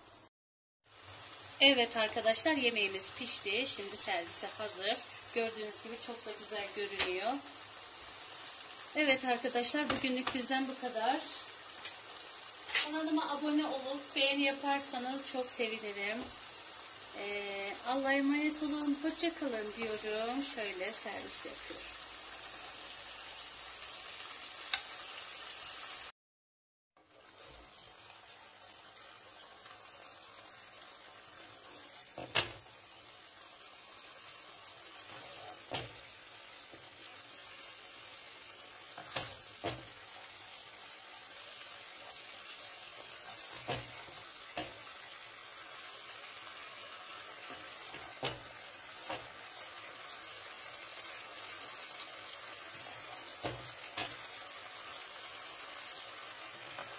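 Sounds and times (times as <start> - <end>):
chicken sizzling in a pan: 0.0 - 26.2, 27.0 - 56.9
wooden spoon knocking on pan: 9.8 - 10.4, 32.2 - 32.6, 35.7 - 36.0, 39.0 - 40.0, 43.6 - 44.8, 47.5 - 49.3, 53.4 - 54.2.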